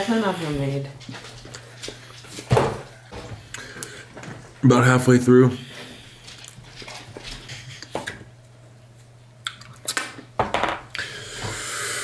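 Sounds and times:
heavy breath out: 0:11.0 - 0:12.0.

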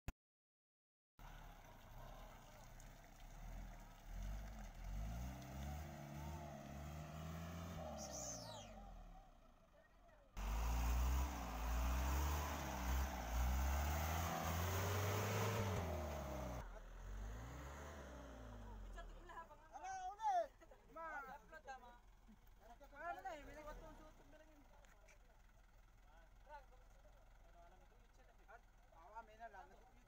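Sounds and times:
truck engine revving: 0:03.3 - 0:09.7, 0:10.4 - 0:19.5.

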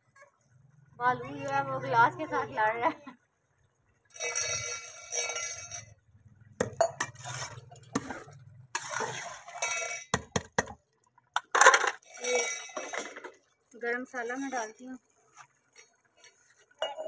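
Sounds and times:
ladle scraping cooking pot: 0:04.1 - 0:05.9, 0:06.6 - 0:10.7, 0:11.4 - 0:13.4.

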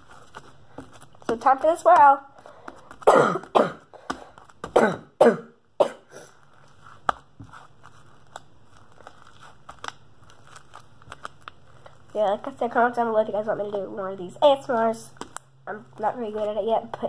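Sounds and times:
girl coughing: 0:03.0 - 0:03.9, 0:04.7 - 0:06.3.

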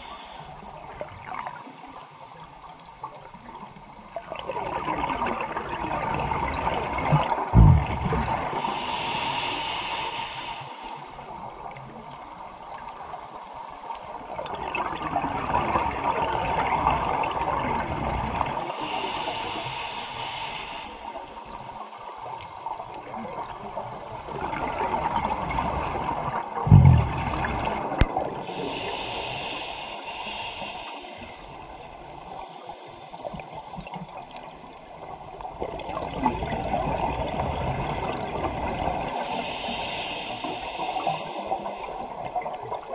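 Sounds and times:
regulator hissing inhale: 0:00.0 - 0:01.0, 0:08.5 - 0:11.8, 0:18.6 - 0:23.0, 0:23.9 - 0:25.6, 0:28.4 - 0:34.2, 0:39.1 - 0:42.5
exhaled bubbles rushing: 0:04.3 - 0:08.6, 0:24.4 - 0:28.5
short low thump: 0:07.6 - 0:08.2, 0:26.7 - 0:27.4.

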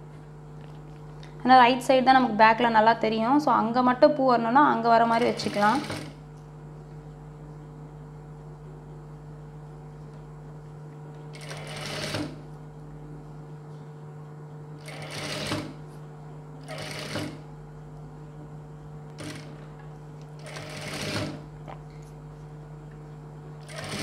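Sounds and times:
steady low hum: 0:00.0 - 0:24.0
sewing machine stitching: 0:05.1 - 0:06.2, 0:11.4 - 0:12.4, 0:14.8 - 0:15.8, 0:16.6 - 0:17.4, 0:19.2 - 0:19.6, 0:20.4 - 0:21.4, 0:23.6 - 0:24.0.

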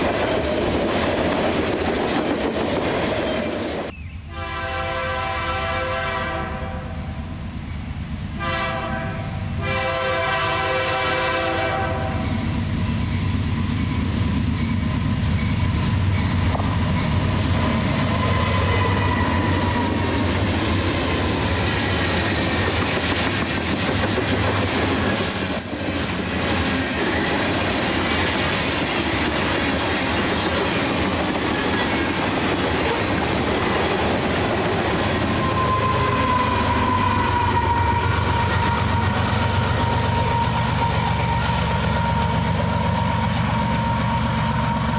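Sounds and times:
diesel locomotive passing: 0:00.0 - 0:44.9
train wheel-and-rail noise: 0:00.0 - 0:44.9
locomotive air horn: 0:04.3 - 0:07.4, 0:08.4 - 0:12.6, 0:35.2 - 0:44.9
high squeal: 0:13.1 - 0:20.3, 0:35.3 - 0:44.9.

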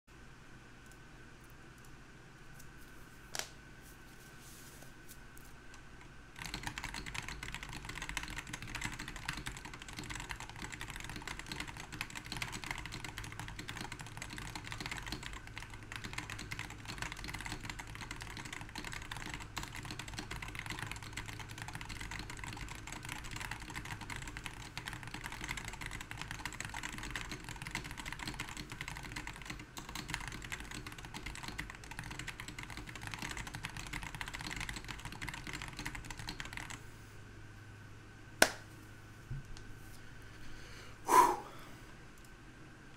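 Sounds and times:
fast keyboard typing: 0:06.3 - 0:36.8.

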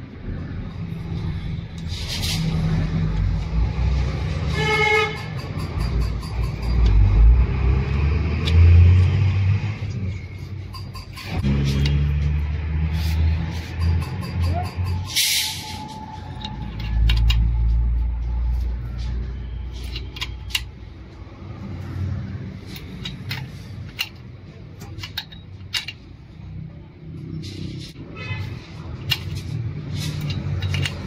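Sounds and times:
small metal parts clinking: 0:10.5 - 0:12.0, 0:13.5 - 0:17.8, 0:19.7 - 0:20.8, 0:22.6 - 0:26.3, 0:28.9 - 0:31.0.

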